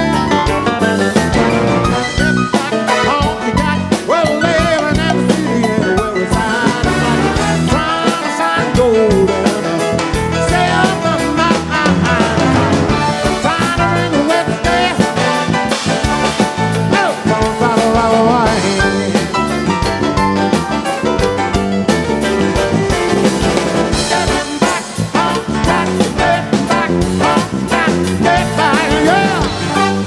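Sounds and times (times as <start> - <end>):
drum kit beat: 0.0 - 30.0
electric bass: 0.0 - 30.0
piano: 0.0 - 30.0.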